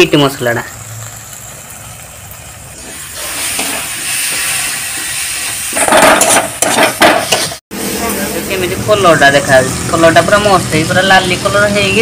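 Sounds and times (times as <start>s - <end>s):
masala sizzling in a pan: 0.0s - 12.0s
stirring in a pan: 1.1s - 7.6s.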